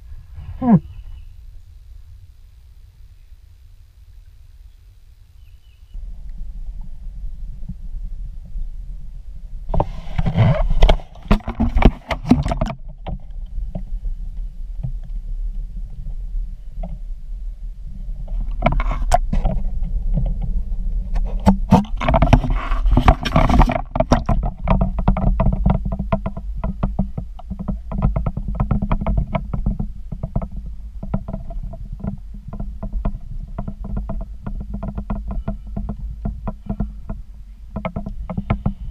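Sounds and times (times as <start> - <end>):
muffled water sloshing: 6.0 - 38.9
knocks and bumps on camera: 9.7 - 13.9, 18.2 - 38.9.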